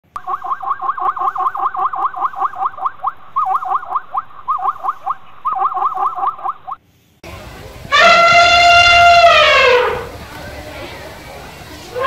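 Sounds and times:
rapid yelping animal calls: 0.2s - 6.8s.

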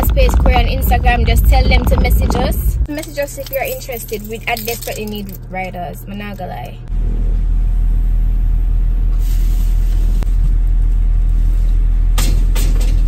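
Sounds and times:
loud low rumble: 0.0s - 3.0s.

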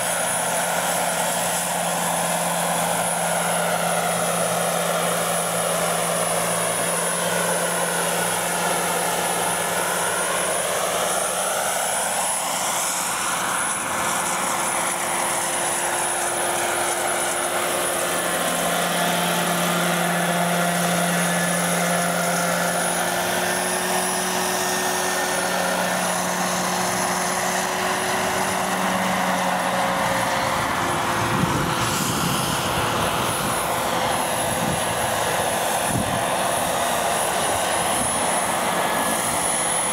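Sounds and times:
model helicopters whirring: 0.0s - 39.9s.

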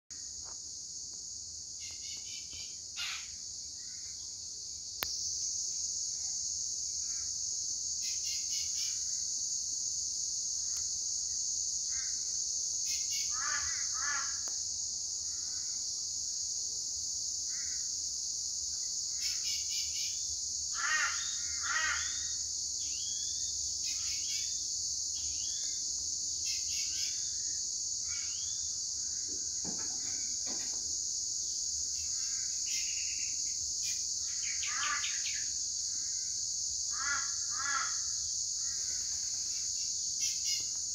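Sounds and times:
high-pitched insect drone: 1.8s - 4.4s, 5.1s - 14.6s, 17.4s - 40.9s
harsh cawing bird calls: 3.0s - 4.0s, 13.2s - 14.4s, 20.7s - 22.4s, 34.4s - 35.4s, 36.9s - 39.0s
click: 5.0s - 5.2s.

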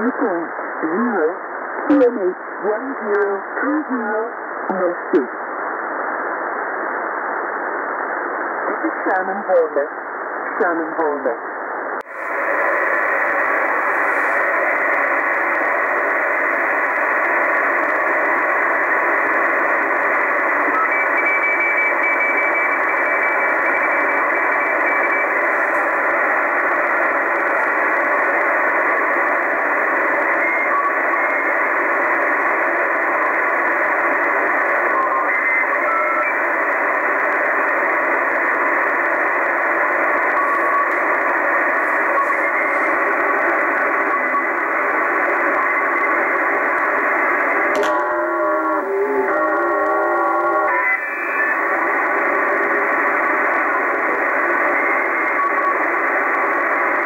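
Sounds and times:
radio static hiss: 0.0s - 57.0s.

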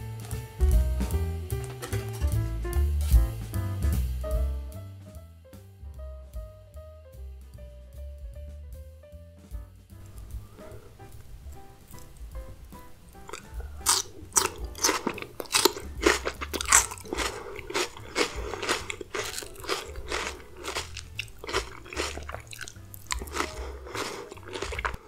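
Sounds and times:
crunching raw onion: 13.3s - 25.0s.

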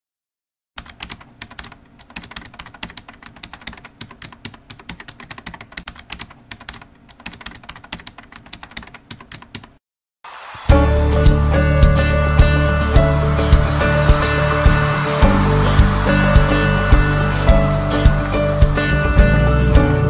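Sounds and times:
rapid irregular clicking: 0.8s - 9.8s.

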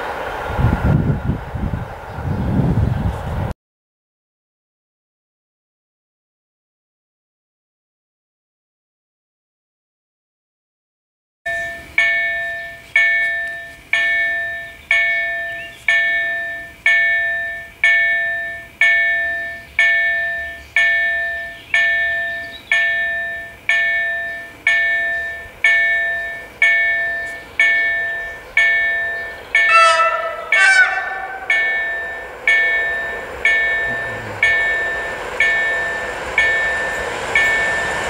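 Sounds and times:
level crossing bell ringing: 11.5s - 38.0s
train horn: 29.5s - 38.0s.

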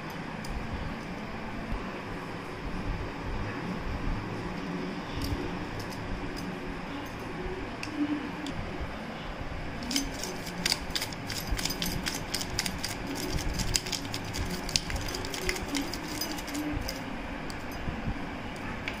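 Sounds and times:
plastic shaker rattling: 9.8s - 17.1s.

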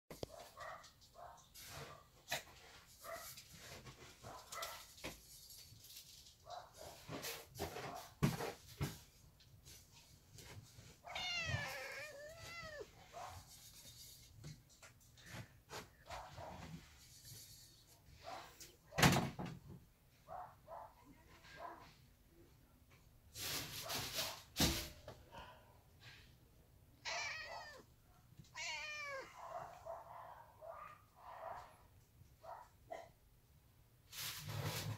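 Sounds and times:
rustling: 0.2s - 18.7s
cat meowing: 11.0s - 13.0s, 27.0s - 27.9s, 28.5s - 29.8s.

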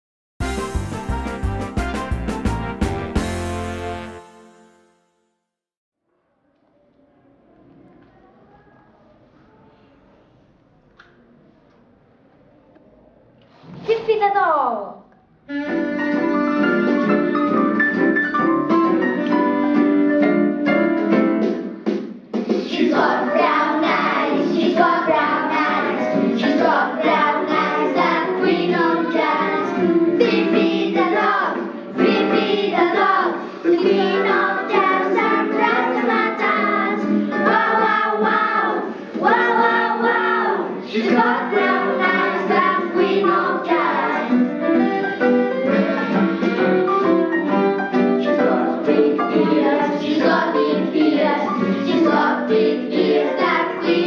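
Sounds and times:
instrumental backing music: 0.4s - 4.8s, 15.5s - 54.0s
children singing: 22.5s - 54.0s.

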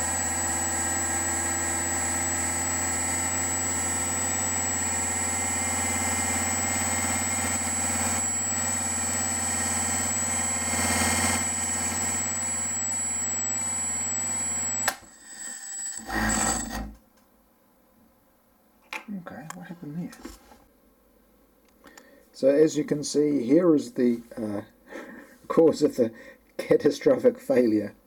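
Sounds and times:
generator hum and whine: 0.0s - 15.1s.

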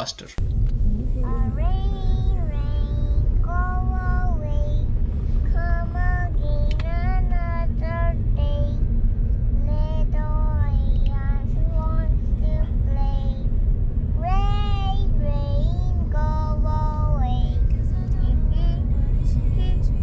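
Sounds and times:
car road noise rumble: 0.0s - 20.0s
child singing: 0.9s - 4.8s, 5.4s - 8.8s, 9.6s - 13.5s, 14.2s - 20.0s.

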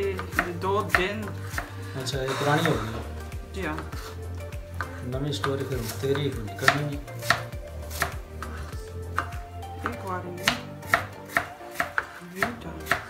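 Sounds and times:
knives chopping on cutting boards: 0.1s - 3.1s, 4.8s - 13.0s.

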